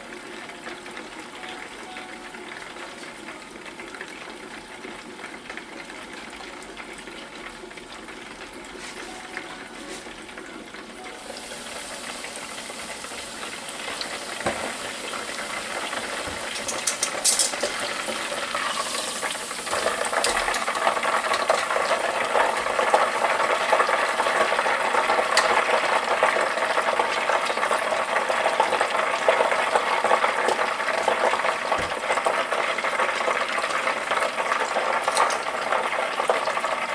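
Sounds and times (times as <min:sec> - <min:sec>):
meat sizzling in hot oil: 0:00.0 - 0:36.9.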